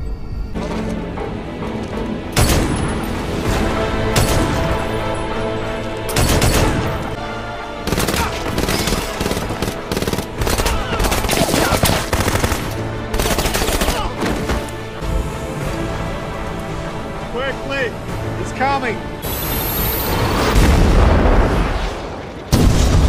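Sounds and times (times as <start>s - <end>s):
tense music score: 0.0s - 23.0s
gunfire shots and bursts: 6.1s - 7.0s, 7.8s - 14.5s.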